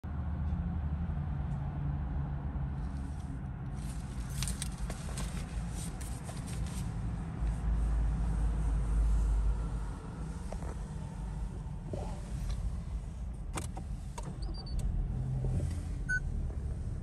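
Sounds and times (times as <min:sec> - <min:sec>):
steady low rumble: 0:00.0 - 0:17.0
car engine starting: 0:03.8 - 0:17.0.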